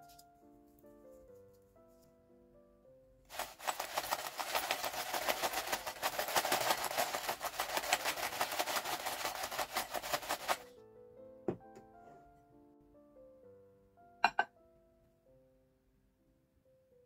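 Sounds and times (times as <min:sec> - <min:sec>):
fries clattering in glass bowl: 0:03.3 - 0:10.6.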